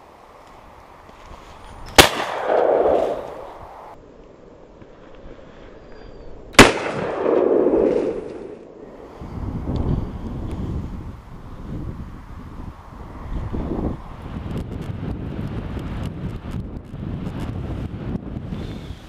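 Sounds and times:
shotgun shots with echo: 0:02.0 - 0:03.5, 0:06.6 - 0:08.6.

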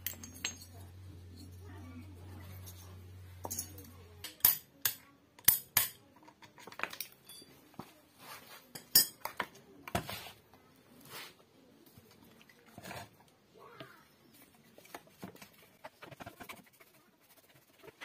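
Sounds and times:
metal parts clinking on concrete: 0:00.0 - 0:00.8, 0:02.6 - 0:07.6.

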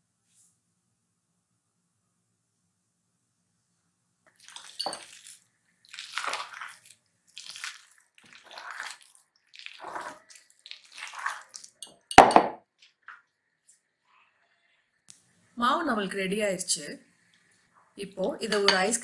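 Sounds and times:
whisk stirring thick batter: 0:04.3 - 0:11.9
whisk clinking glass bowl: 0:04.4 - 0:05.4.

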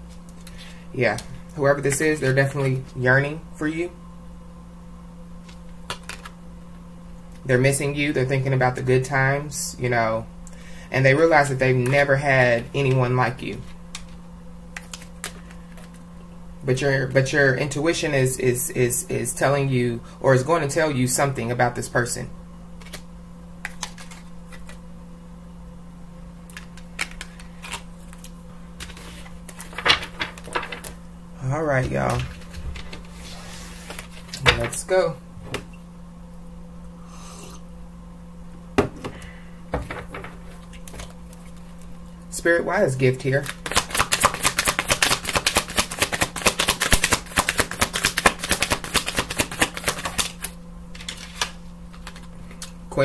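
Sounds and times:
low electrical hum: 0:00.0 - 0:53.0
cards clicking and tapping: 0:05.9 - 0:06.3, 0:13.9 - 0:16.0, 0:22.8 - 0:23.0, 0:23.6 - 0:24.8, 0:26.5 - 0:31.0, 0:43.4 - 0:52.8.

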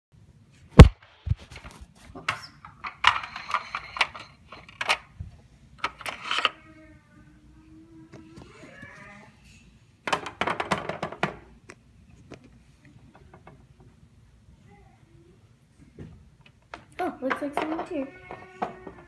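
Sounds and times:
faint steady hum: 0:00.2 - 0:19.0
plastic toys clattering: 0:02.2 - 0:05.1, 0:05.8 - 0:06.6, 0:10.1 - 0:11.5, 0:16.7 - 0:19.0.

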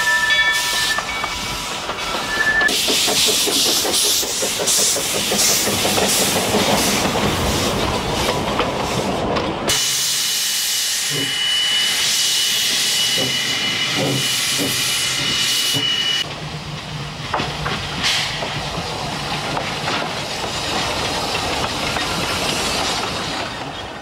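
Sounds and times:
train running rumble: 0:00.0 - 0:24.0
steam hissing with high tone: 0:09.7 - 0:16.2.

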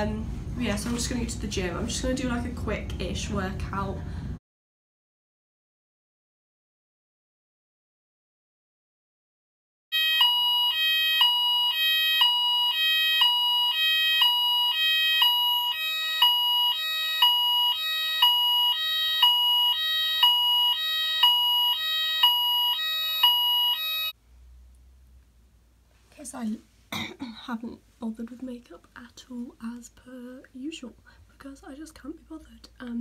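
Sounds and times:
phone alarm ringing: 0:09.9 - 0:24.2.

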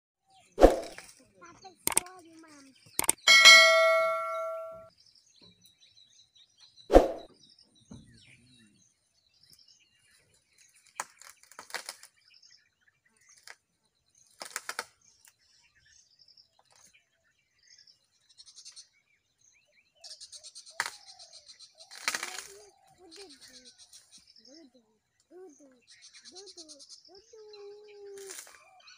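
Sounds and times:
birds chirping: 0:00.6 - 0:04.8
bell-like ding: 0:03.0 - 0:04.9
branches cracking and snapping: 0:10.9 - 0:12.1, 0:21.9 - 0:22.6.

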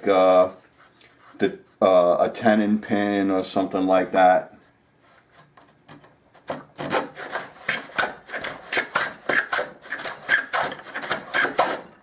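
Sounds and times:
hand plane scraping wood: 0:06.4 - 0:11.9.

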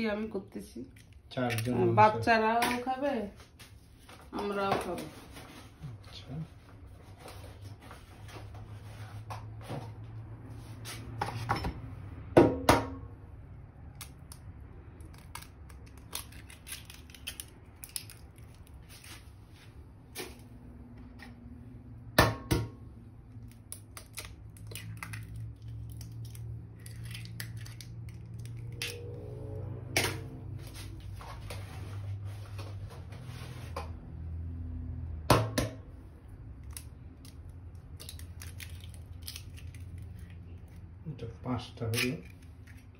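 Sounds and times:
eggs cracking on metal bowl: 0:00.9 - 0:01.8, 0:13.9 - 0:18.7, 0:23.4 - 0:29.1, 0:36.6 - 0:40.8.

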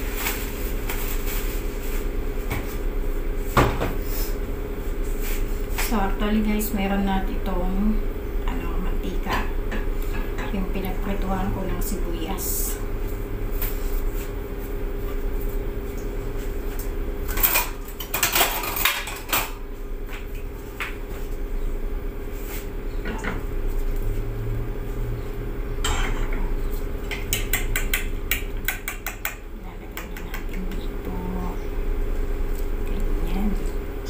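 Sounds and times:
steady low hum: 0:00.0 - 0:34.0
kitchenware clinking and clattering: 0:17.3 - 0:19.6, 0:25.8 - 0:26.5.

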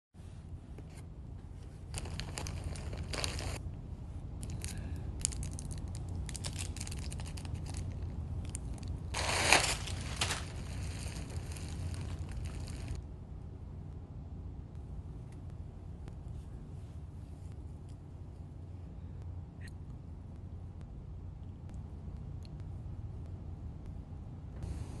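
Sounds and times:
steady low hum: 0:00.2 - 0:25.0
packaging crinkling: 0:01.9 - 0:03.6, 0:04.5 - 0:13.0.

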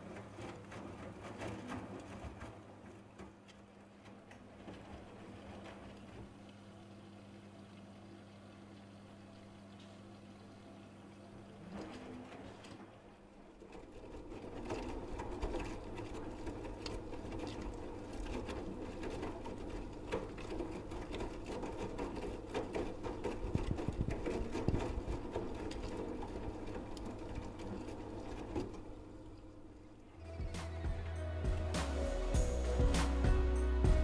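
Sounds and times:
laundry tumbling and splashing: 0:00.0 - 0:06.4
washing machine drum motor humming: 0:00.0 - 0:29.2, 0:30.2 - 0:34.0.

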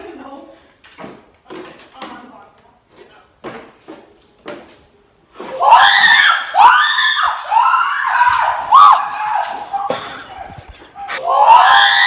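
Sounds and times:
girls screaming in fright: 0:05.5 - 0:10.2, 0:11.1 - 0:12.0.

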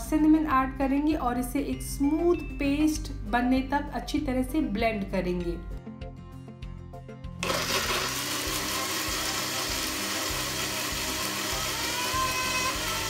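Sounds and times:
blender motor whine: 0:07.4 - 0:13.0.

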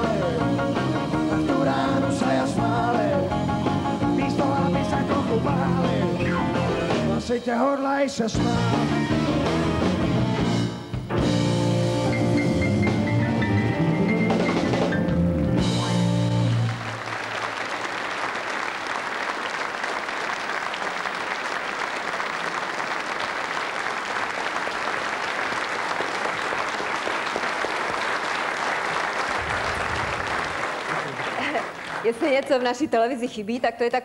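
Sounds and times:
audience applauding: 0:15.8 - 0:32.8.

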